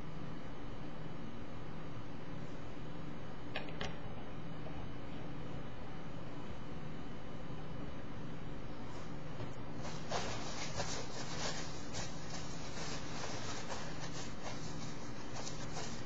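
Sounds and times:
paper tissue crinkling: 9.8s - 16.0s
steady hiss: 9.8s - 16.0s.

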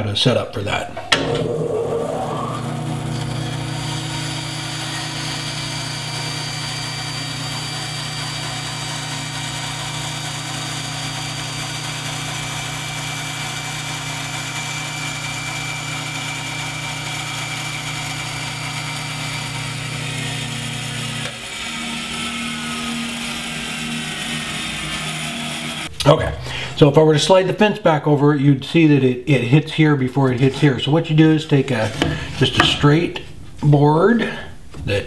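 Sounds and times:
band saw humming: 0.7s - 27.1s, 30.2s - 35.0s
saw cutting wooden board: 1.0s - 25.9s, 31.6s - 33.4s.

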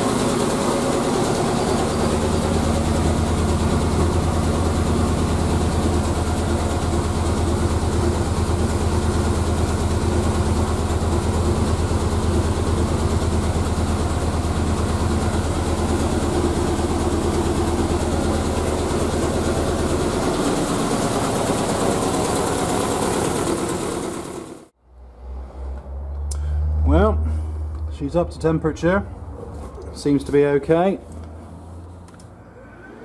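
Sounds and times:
car engine idling: 0.0s - 24.8s.

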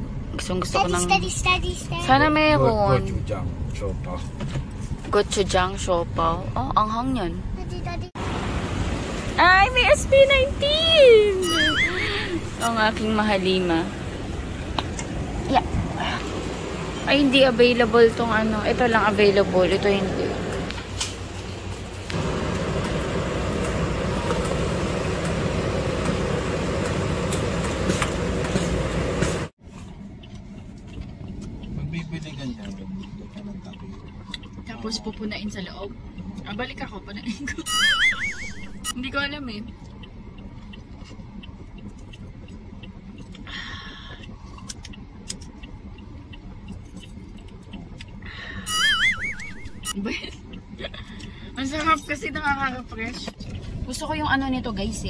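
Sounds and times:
car cabin rumble: 0.0s - 37.6s.

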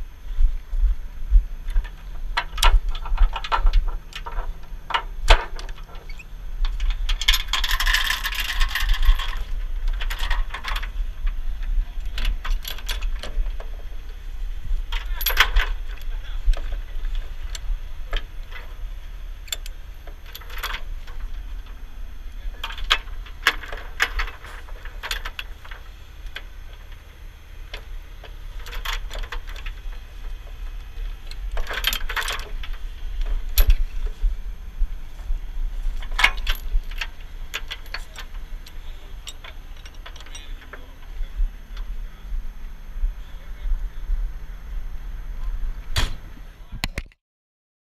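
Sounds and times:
low steady rumble: 0.0s - 47.0s
steel chains clinking and rattling: 2.6s - 10.9s, 14.9s - 21.8s, 22.5s - 27.0s, 28.5s - 30.3s, 31.2s - 34.1s, 35.8s - 41.0s.

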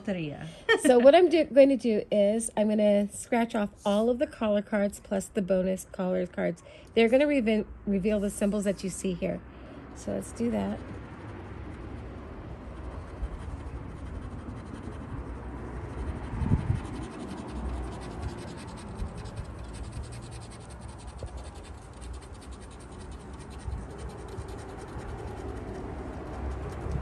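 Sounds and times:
scratching scratch-off ticket: 10.2s - 27.0s.

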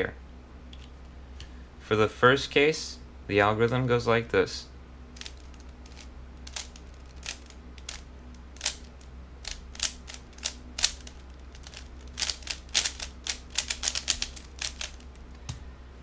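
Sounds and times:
speed cube clacking: 5.2s - 15.2s.

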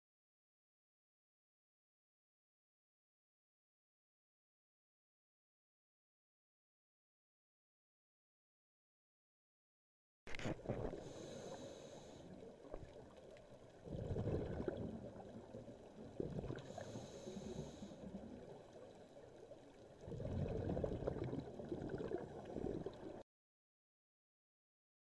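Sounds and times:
gurgling exhaled bubbles: 10.5s - 23.2s
hissing inhale: 10.9s - 12.5s, 16.6s - 18.2s.

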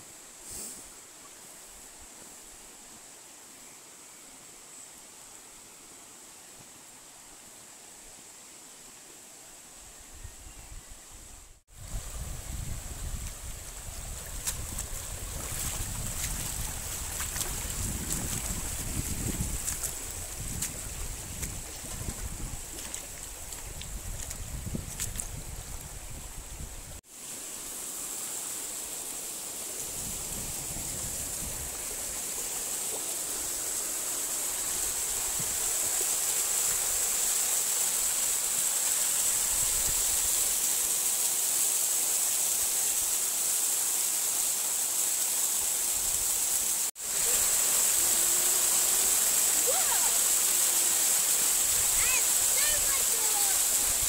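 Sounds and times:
wind on microphone: 10.2s - 27.0s, 29.9s - 31.9s
river running over stones: 11.6s - 54.0s
waterfall splashing: 13.1s - 23.8s, 27.0s - 54.0s.

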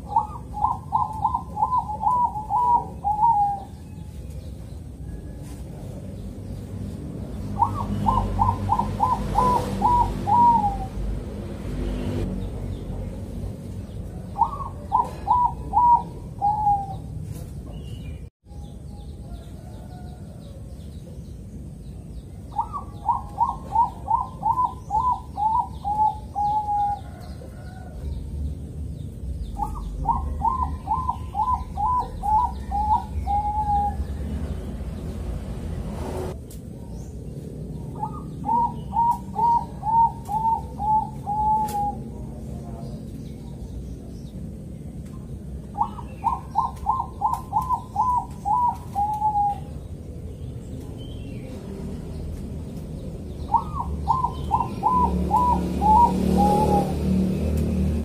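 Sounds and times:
dove cooing: 0.0s - 4.2s, 7.4s - 11.2s, 14.0s - 17.4s, 22.5s - 28.1s, 29.6s - 34.5s, 37.8s - 42.8s, 45.6s - 49.9s, 53.0s - 57.5s
small birds chirping: 0.0s - 58.0s.

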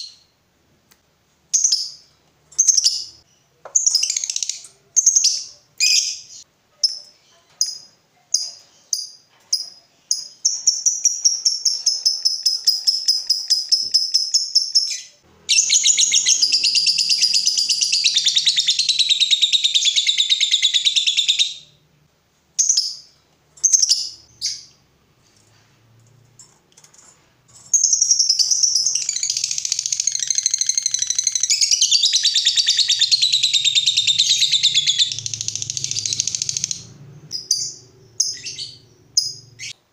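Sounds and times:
lovebird chirps and trills: 2.6s - 21.8s, 27.6s - 39.8s.

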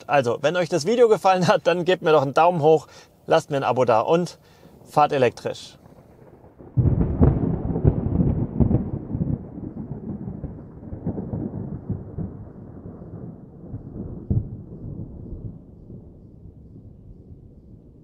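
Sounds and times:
deep thunder-like rumbling booms: 5.7s - 18.0s.

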